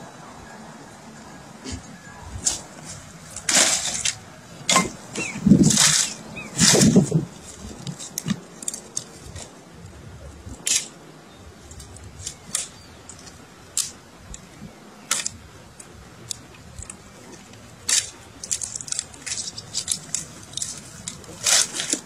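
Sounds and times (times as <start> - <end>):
sticks clicking and cracking: 2.4 - 11.0, 11.7 - 22.0.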